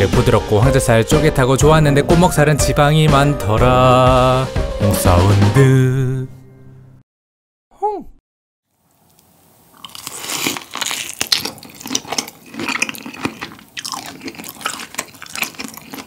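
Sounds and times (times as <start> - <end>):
wet squishy chewing: 8.9 - 16.0
crunchy bites: 9.0 - 16.0.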